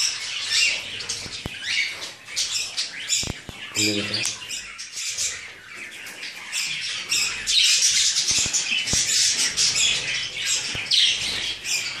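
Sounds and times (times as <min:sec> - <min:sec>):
parrots chattering and screeching: 0:00.0 - 0:12.0.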